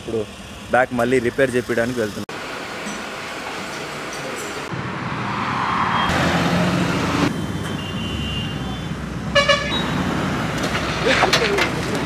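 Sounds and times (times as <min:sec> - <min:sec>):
road traffic passing: 0:00.0 - 0:12.0
car horn toot: 0:07.4 - 0:09.9.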